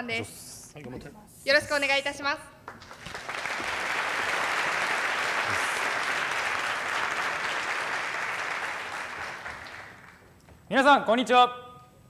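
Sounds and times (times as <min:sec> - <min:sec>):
audience applauding: 0:02.7 - 0:10.4.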